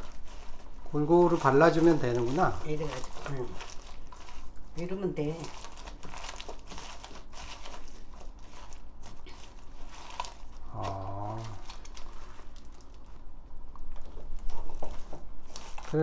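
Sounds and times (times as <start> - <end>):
crackling rustles of stalks: 0.0 - 13.3, 13.9 - 16.0
wet squishing of paste: 0.0 - 16.0
person humming: 10.7 - 11.7.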